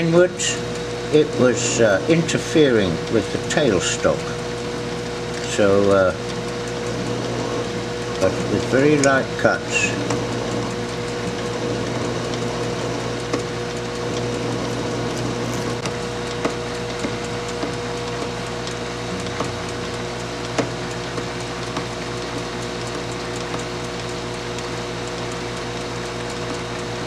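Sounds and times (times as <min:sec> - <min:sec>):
metal lathe humming: 0:00.0 - 0:27.0
sharp ticks from cutting: 0:08.1 - 0:10.1.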